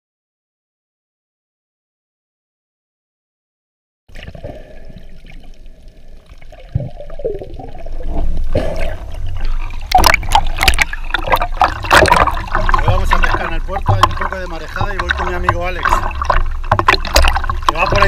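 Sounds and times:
muffled underwater water noise: 4.1 - 18.0
water splashing and sloshing: 4.1 - 18.0.

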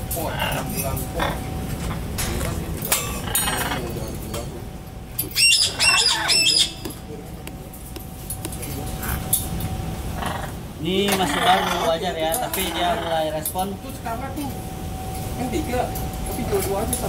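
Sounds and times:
parrot calling: 0.2 - 2.0, 3.0 - 3.9, 5.2 - 7.0, 10.1 - 13.4.

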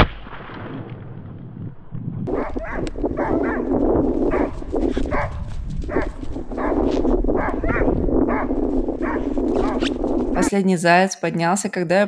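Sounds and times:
dog barking in short calls: 2.3 - 3.7, 5.1 - 6.8, 7.4 - 9.8.

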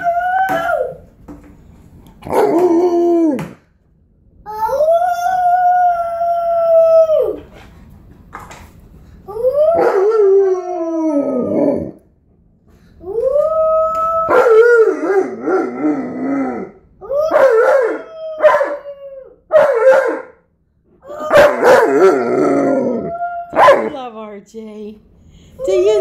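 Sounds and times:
child howling: 0.0 - 1.0, 4.5 - 7.5, 9.3 - 11.9, 13.0 - 19.5, 21.0 - 23.6
dog howling: 0.0 - 1.0, 4.7 - 7.5, 9.4 - 12.0, 13.2 - 20.4, 21.0 - 23.9.

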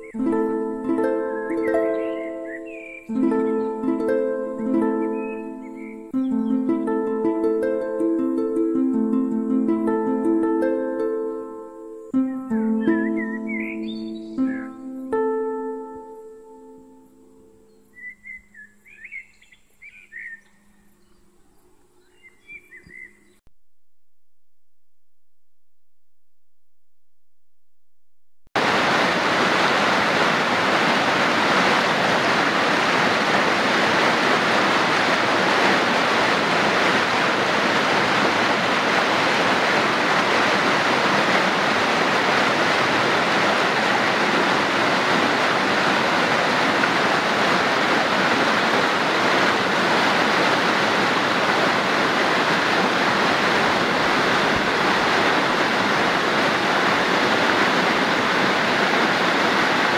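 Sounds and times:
creek rushing over rocks: 0.0 - 10.8, 28.6 - 59.9.

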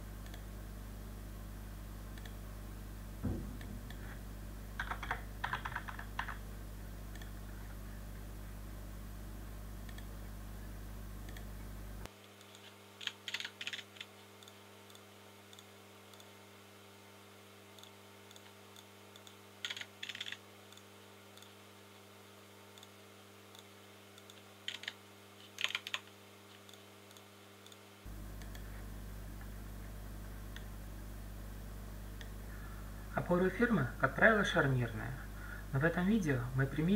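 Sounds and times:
faint low hum: 0.0 - 36.9
computer keyboard typing: 4.8 - 6.4, 12.4 - 14.6, 19.2 - 21.5, 24.2 - 26.1.

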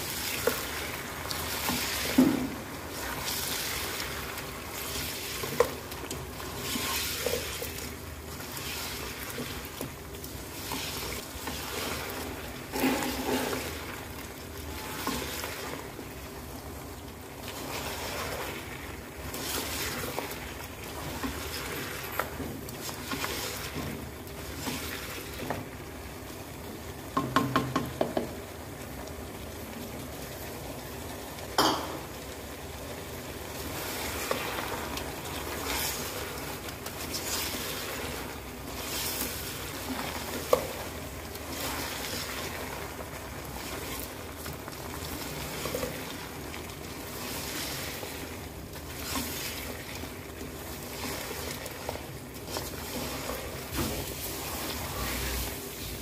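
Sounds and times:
meat sizzling in oil: 0.0 - 56.0
spatula scraping pot: 10.5 - 13.9.

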